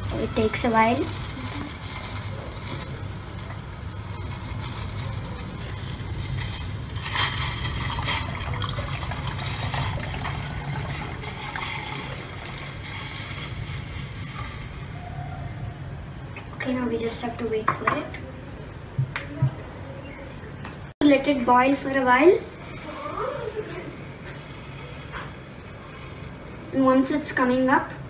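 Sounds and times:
tea simmering in a saucepan: 0.0s - 15.5s, 21.6s - 27.5s
milk pouring: 4.3s - 14.5s.

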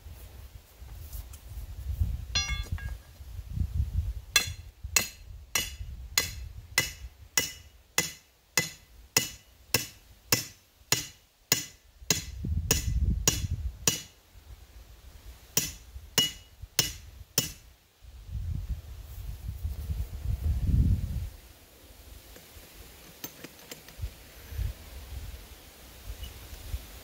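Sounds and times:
hammer striking metal rod: 2.4s - 3.0s, 4.4s - 14.1s, 15.6s - 17.6s.

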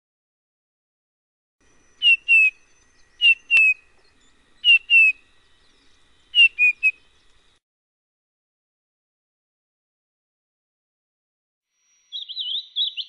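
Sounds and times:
bird whistles: 1.8s - 7.1s, 12.1s - 13.0s.

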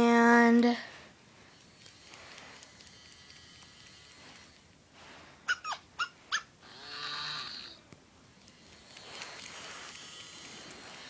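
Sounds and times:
electronic toy dog whimper: 5.5s - 6.5s
electronic toy dog yips: 5.5s - 6.5s.

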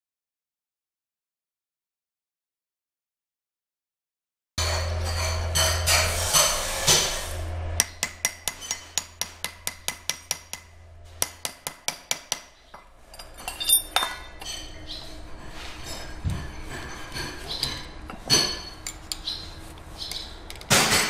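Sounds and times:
hammer tapping steel: 7.8s - 12.6s
light metal clinks: 13.1s - 14.4s.

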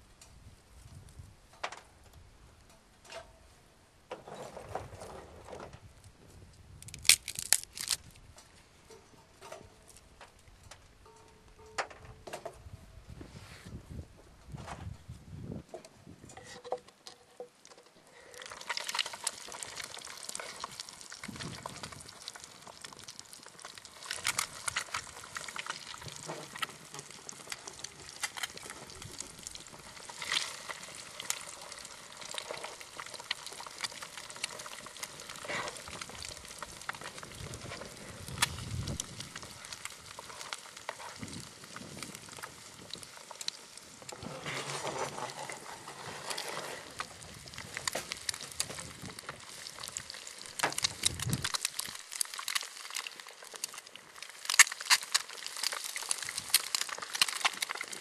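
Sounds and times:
crackling pops: 6.5s - 11.9s, 17.0s - 58.0s
eggs sizzling in grease: 17.5s - 58.0s.

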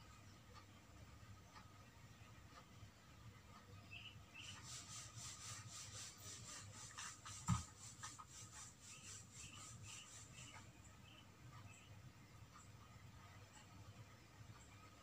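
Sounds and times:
hands rubbing on cloth: 4.5s - 10.6s.

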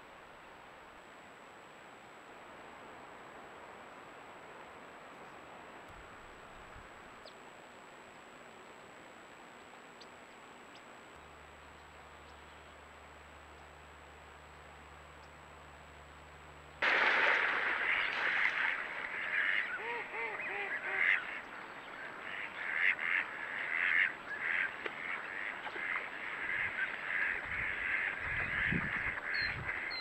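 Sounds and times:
lower arching calls: 16.8s - 30.0s
chorus of animal calls: 17.7s - 28.7s.

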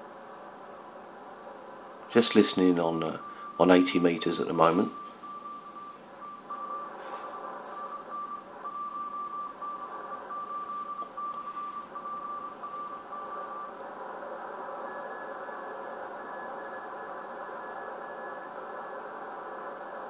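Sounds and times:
radio band hiss: 2.1s - 6.0s
faint high-pitched morse signal: 2.1s - 20.0s
morse code tone: 2.2s - 13.8s, 14.8s - 19.0s.

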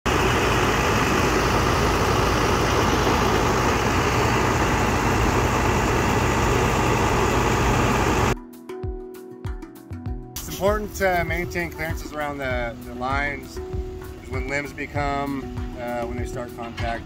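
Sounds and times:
heavy engine running: 0.0s - 8.4s.

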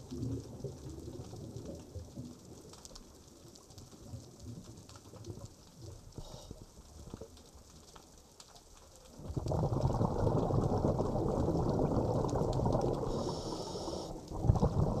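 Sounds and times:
faint underwater crackling: 0.0s - 15.0s
exhaled breath bubbling underwater: 9.2s - 15.0s
higher hiss: 13.1s - 14.2s.

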